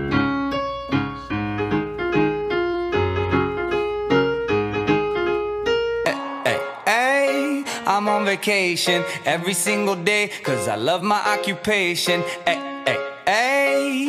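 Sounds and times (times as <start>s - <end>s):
electric piano chords: 0.0s - 14.0s.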